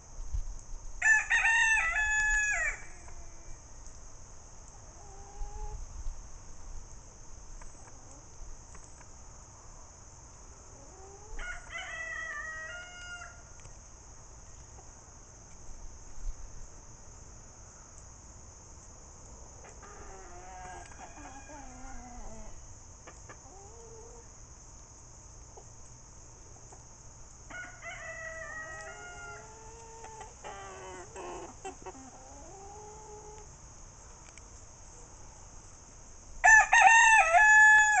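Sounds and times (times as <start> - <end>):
roosters crowing: 1.0 - 3.6, 10.8 - 13.5, 19.8 - 22.6, 27.5 - 33.4, 36.4 - 38.0.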